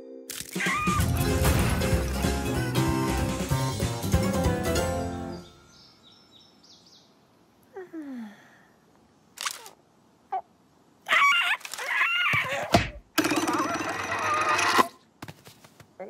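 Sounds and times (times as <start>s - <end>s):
cartoon bird squawk: 11.1s - 12.7s.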